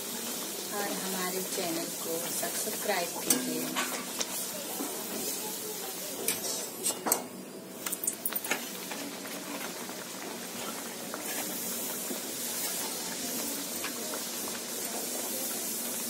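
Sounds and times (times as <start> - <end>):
oil sizzling and bubbling: 0.0 - 16.0
wire skimmer clicking on pan: 3.2 - 4.3.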